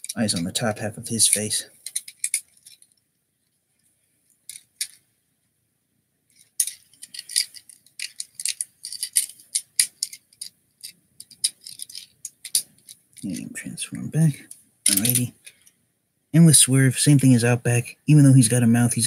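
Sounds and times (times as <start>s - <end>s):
plastic toy clicking and rattling: 0.0s - 0.5s, 1.2s - 3.0s, 4.4s - 5.0s, 6.3s - 13.4s, 14.5s - 15.7s.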